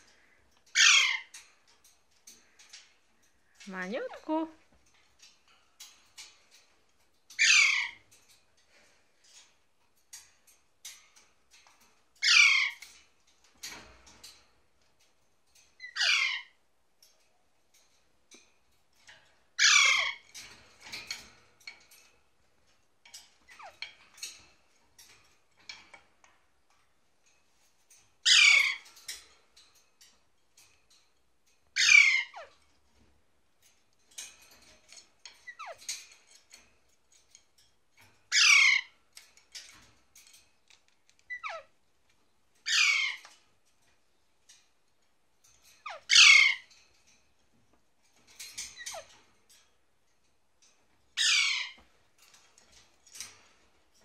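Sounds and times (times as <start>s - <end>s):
parakeets squawking: 0.8s - 1.3s, 7.4s - 8.0s, 12.2s - 12.8s, 15.9s - 16.4s, 19.6s - 20.2s, 28.3s - 28.8s, 31.8s - 32.5s, 38.3s - 38.9s, 42.7s - 43.3s, 45.9s - 46.7s, 51.2s - 51.8s.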